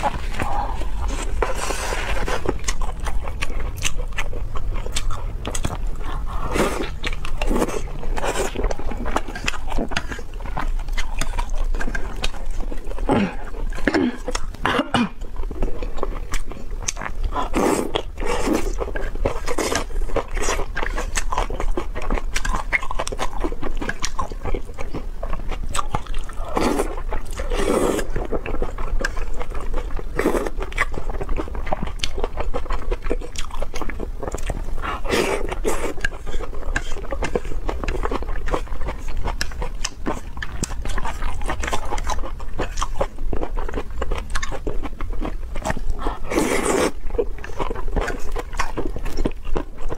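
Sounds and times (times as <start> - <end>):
slurping noodles: 26.5 - 28.1, 46.0 - 47.0.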